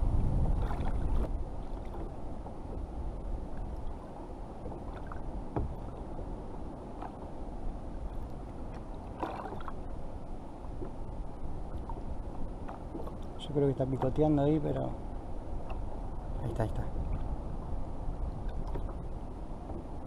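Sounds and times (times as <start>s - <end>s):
steady low rumble: 0.0s - 4.1s
water sloshing against kayak hull: 0.3s - 20.0s.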